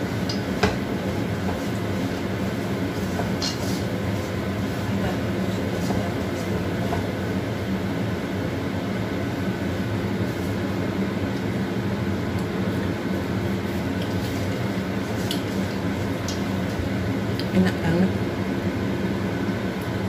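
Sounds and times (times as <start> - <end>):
low hum and rumble: 0.0 - 20.0
spatula scraping wok: 0.1 - 7.1.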